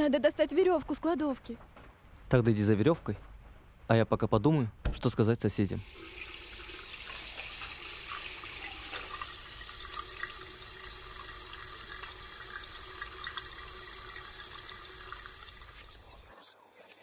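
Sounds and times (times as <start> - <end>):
tap water running into sink: 5.8 - 16.3.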